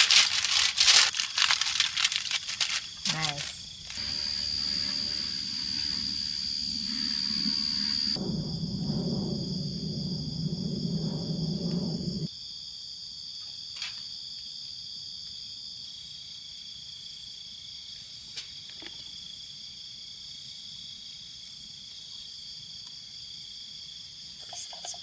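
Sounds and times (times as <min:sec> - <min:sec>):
night insects trilling: 0:00.0 - 0:25.0
low rumbling noise: 0:03.1 - 0:12.3.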